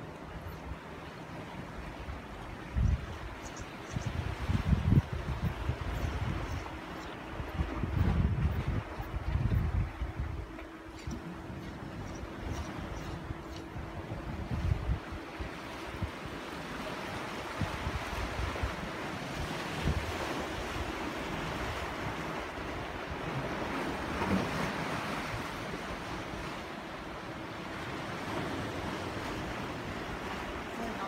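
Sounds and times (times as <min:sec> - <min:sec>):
waves washing on shore: 0:00.0 - 0:31.0
wind buffeting microphone: 0:01.8 - 0:26.6.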